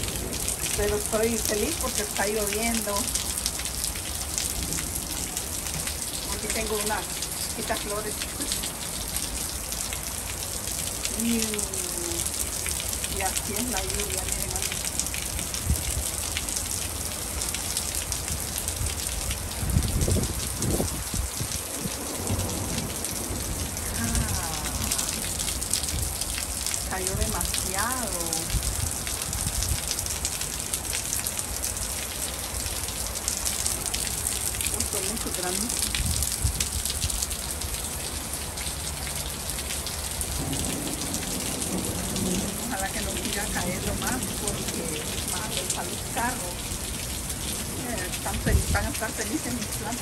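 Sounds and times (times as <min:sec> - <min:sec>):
heavy rain falling: 0:00.0 - 0:50.0.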